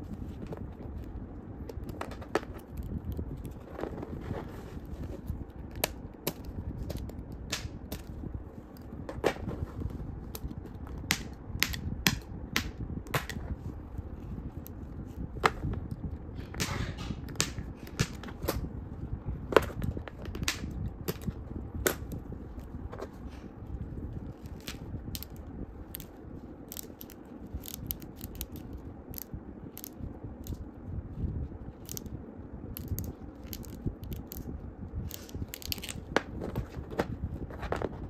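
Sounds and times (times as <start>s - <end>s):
scraping rustle: 3.3s - 5.4s
plastic toy joints clicking: 26.7s - 30.6s, 31.8s - 32.1s.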